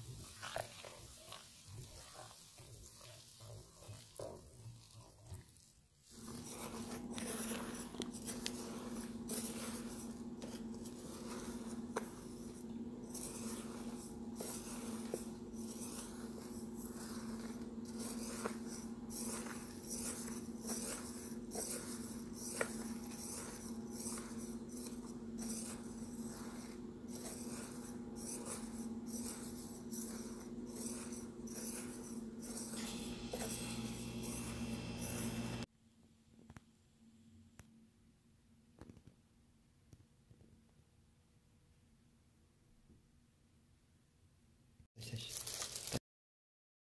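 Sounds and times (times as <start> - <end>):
paste scraped in steel bowl: 0.0 - 35.7
steady low hum: 6.2 - 35.7.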